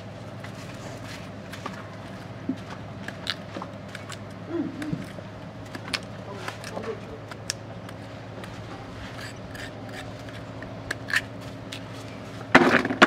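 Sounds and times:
knife scraping root: 0:04.8 - 0:12.2.

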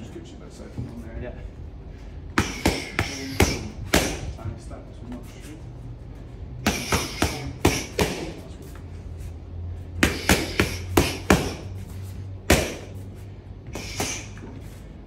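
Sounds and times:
boxing gloves hitting focus mitts: 0:02.3 - 0:04.4, 0:06.6 - 0:08.5, 0:09.9 - 0:11.8, 0:12.4 - 0:13.0, 0:13.7 - 0:14.6.

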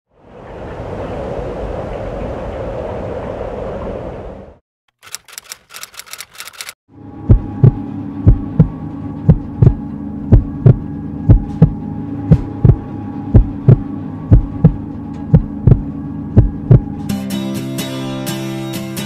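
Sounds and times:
steady low hum: 0:06.9 - 0:17.1
heartbeat thumps: 0:07.3 - 0:17.0.

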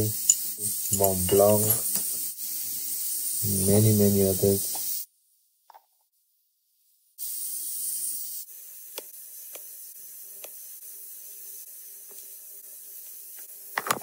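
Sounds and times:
background hiss: 0:00.0 - 0:05.6.

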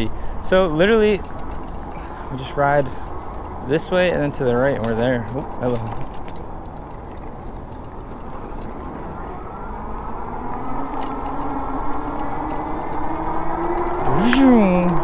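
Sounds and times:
wind and tyre noise: 0:00.0 - 0:15.0
light ticks: 0:10.6 - 0:15.0.

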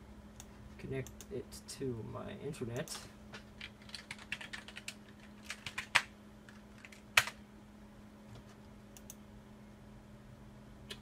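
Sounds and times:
faint steady hum: 0:00.0 - 0:11.0
typing on computer keyboard: 0:03.6 - 0:06.1.

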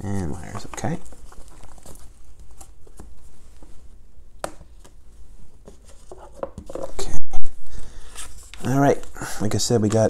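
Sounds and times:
cards tapping and scraping: 0:08.1 - 0:10.0.

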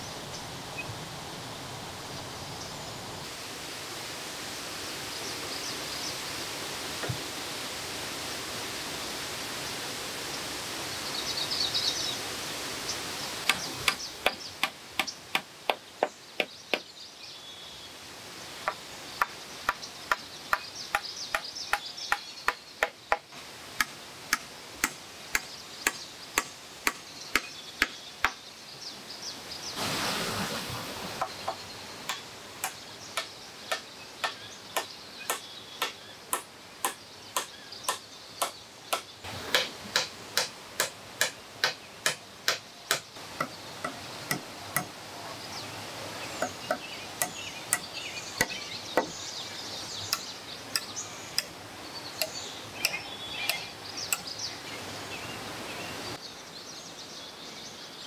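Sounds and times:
hatchet chopping log: 0:13.5 - 0:16.9, 0:23.8 - 0:28.4, 0:32.1 - 0:44.9, 0:46.4 - 0:49.2.

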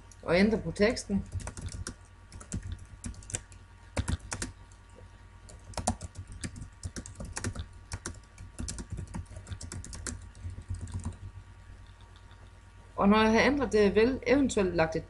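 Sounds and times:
low steady hum: 0:00.0 - 0:15.0
computer keyboard typing: 0:01.2 - 0:04.6, 0:05.5 - 0:12.3.

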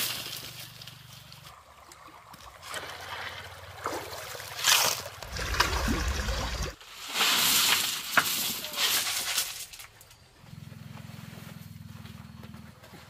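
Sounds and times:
stream water running: 0:01.2 - 0:06.8
shovel scooping pebbles from water: 0:01.9 - 0:09.6.

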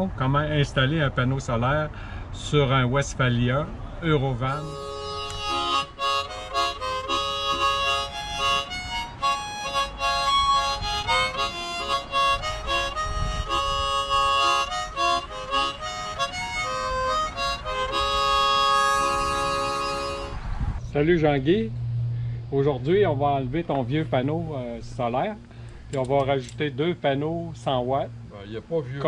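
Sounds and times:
harmonica melody: 0:04.4 - 0:20.6.

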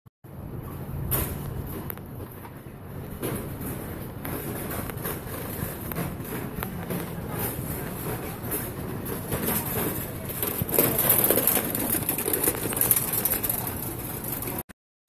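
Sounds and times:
people walking: 0:00.6 - 0:14.6
hubbub of indistinct voices: 0:05.5 - 0:14.6.

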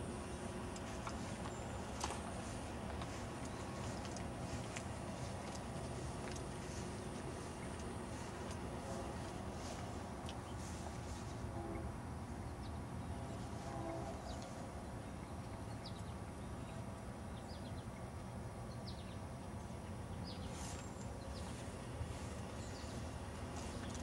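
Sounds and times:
steady low rumble: 0:00.0 - 0:16.4.

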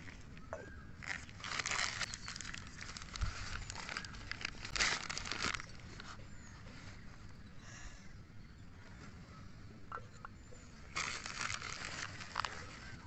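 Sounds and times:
paper wrapping crinkling: 0:01.0 - 0:06.2, 0:10.9 - 0:13.0.

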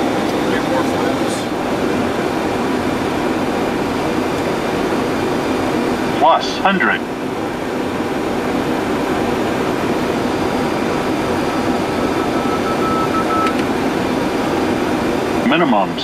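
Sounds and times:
cockpit airflow and air-conditioning: 0:00.0 - 0:16.0
faint beeping tone: 0:10.7 - 0:13.6.

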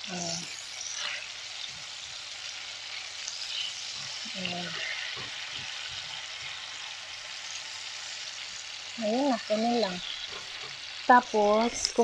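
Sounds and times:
tofu sizzling in hot oil: 0:00.0 - 0:12.0
tongs turning food: 0:00.0 - 0:12.0.

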